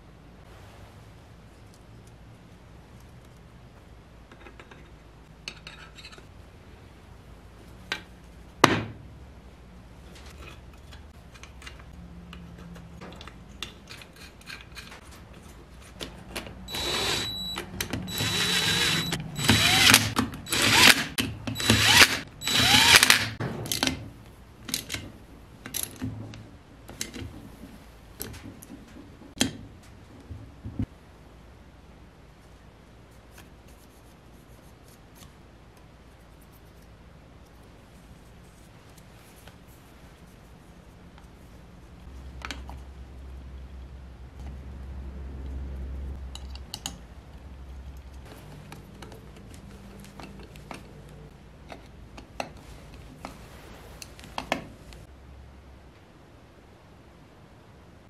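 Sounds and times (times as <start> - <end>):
cordless driver whining: 16.7 - 23.4.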